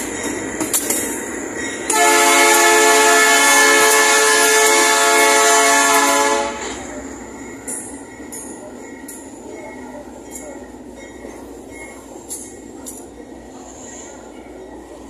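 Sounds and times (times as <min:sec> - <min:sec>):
train air horn blast: 0:01.9 - 0:06.8.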